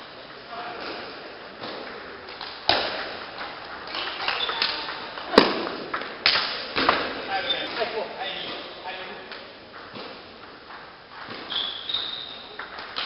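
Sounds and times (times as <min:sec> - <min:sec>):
table tennis ball knocking: 0:12.6 - 0:13.0.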